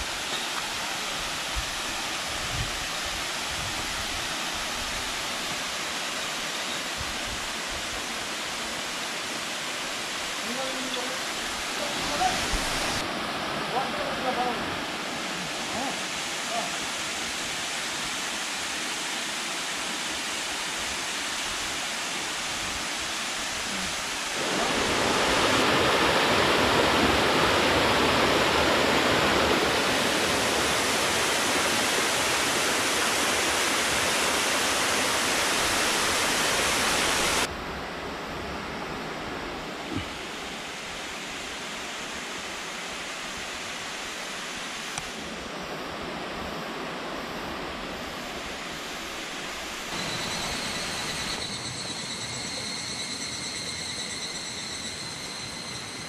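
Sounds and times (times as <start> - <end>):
waterfall rushing over rock: 0.0 - 37.5.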